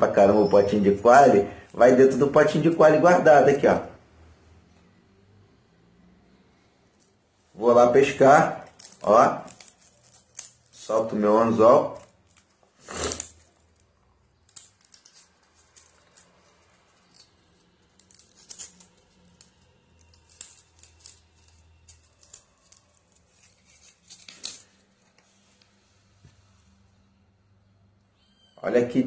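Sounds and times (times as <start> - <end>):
hooks scratching and clicking: 8.5 - 25.0.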